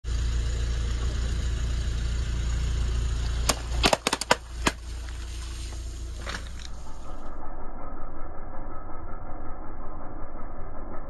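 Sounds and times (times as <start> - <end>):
car idling hum: 0.0 - 7.4.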